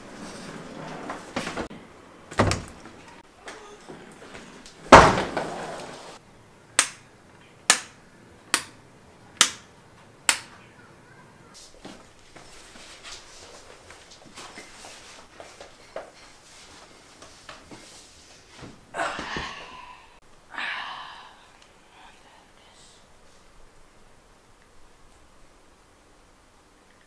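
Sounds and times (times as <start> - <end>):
door shutting loudly: 2.3 - 3.0
thump: 4.9 - 5.7.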